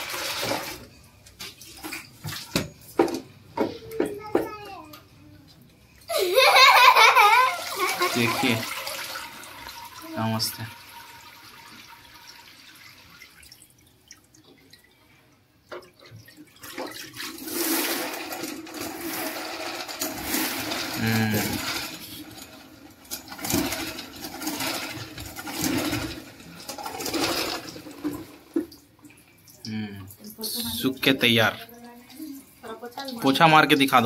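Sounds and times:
mop spinning in wringer basket: 6.4s - 10.0s, 17.2s - 28.6s
water dripping from mop: 13.1s - 15.1s, 28.6s - 32.3s.

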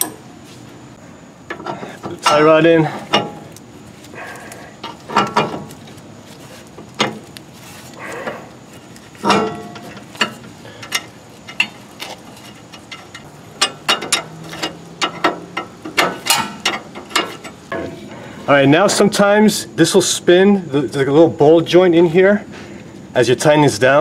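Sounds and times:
metal knocks and clicks: 4.8s - 5.8s, 6.8s - 7.3s, 9.2s - 18.0s.

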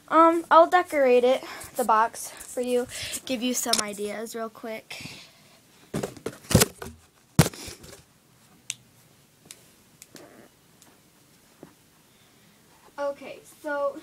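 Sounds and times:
objects knocking and rustling: 5.9s - 8.1s.

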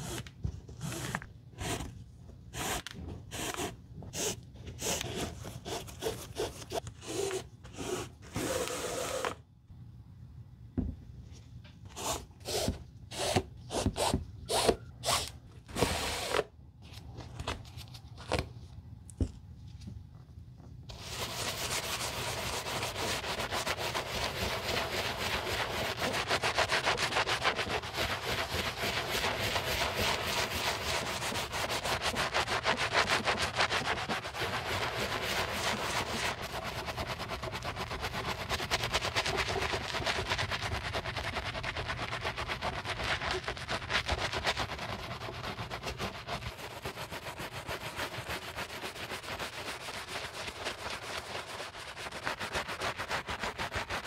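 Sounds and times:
brush scrubbing a sneaker: 20.9s - 54.0s.

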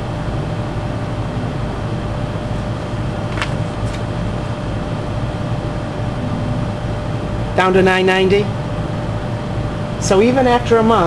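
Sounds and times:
air handler blower humming: 0.0s - 11.0s
faint steady tone: 6.1s - 7.6s.

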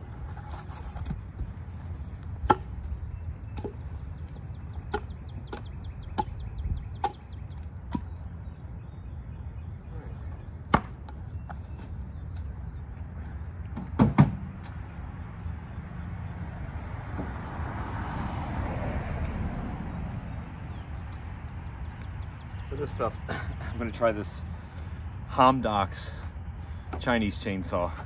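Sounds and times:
low wind rumble: 0.0s - 28.0s
hatchet chopping branches: 2.4s - 2.8s, 4.9s - 6.4s, 7.0s - 7.3s, 10.7s - 11.2s.

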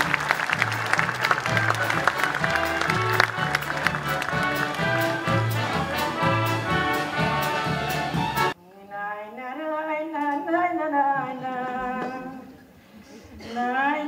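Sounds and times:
band music with brass: 0.0s - 8.6s.

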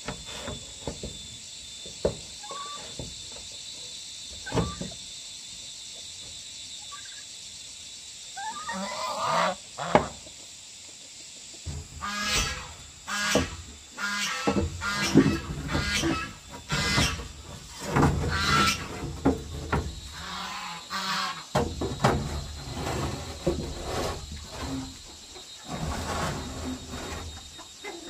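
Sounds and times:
animal calls: 8.4s - 10.1s.

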